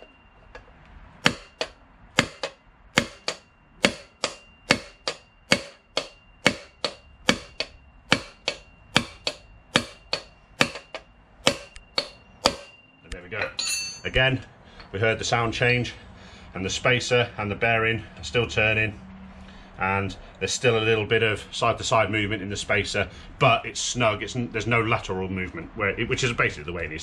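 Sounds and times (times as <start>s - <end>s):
hammer striking metal: 1.2s - 14.3s.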